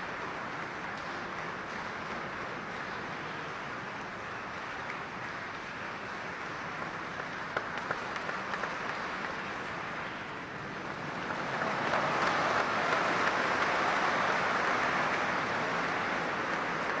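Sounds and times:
single claps: 0.0s - 3.1s, 4.0s - 9.5s, 11.2s - 17.0s
audience applauding: 6.6s - 9.7s, 10.8s - 17.0s.

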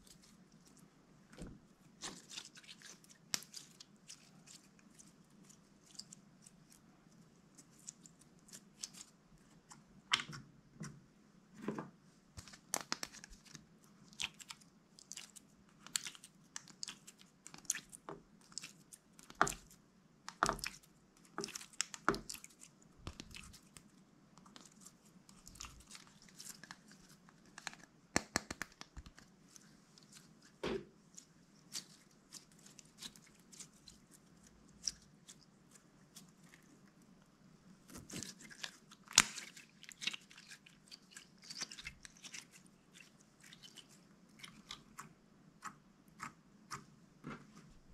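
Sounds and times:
slime squishing with sticky pops: 12.4s - 36.8s, 37.8s - 46.9s.

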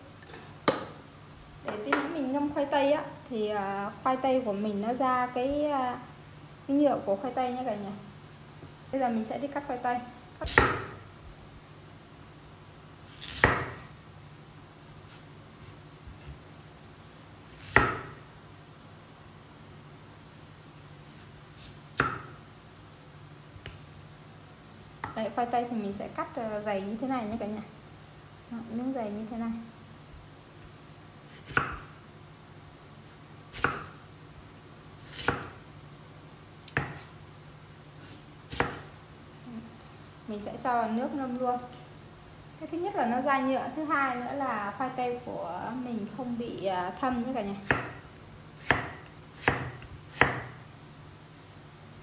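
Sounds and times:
knife slicing potato: 10.4s - 11.0s, 12.8s - 13.9s, 17.1s - 18.2s, 20.6s - 22.4s, 31.3s - 32.0s, 33.0s - 34.0s, 35.0s - 35.6s, 36.7s - 37.2s, 37.9s - 39.0s, 47.6s - 50.6s.

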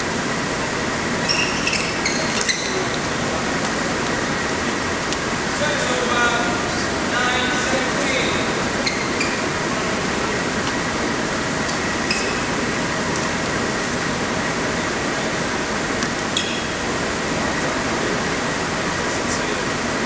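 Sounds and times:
crowded indoor sports hall noise: 0.0s - 20.0s
shoes squeaking on court floor: 1.2s - 3.1s, 8.8s - 9.6s, 11.6s - 12.6s, 16.3s - 16.8s.

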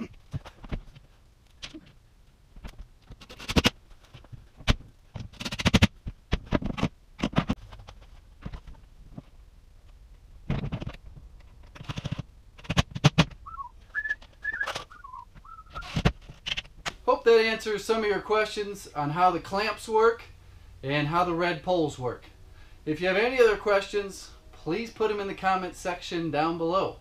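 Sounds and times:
man whistling: 13.4s - 15.9s.

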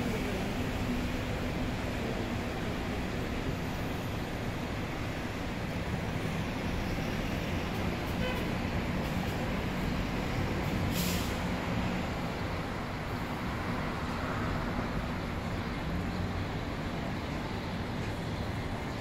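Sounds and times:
traffic rumble: 0.0s - 19.0s
short sharp hiss: 10.9s - 11.4s.

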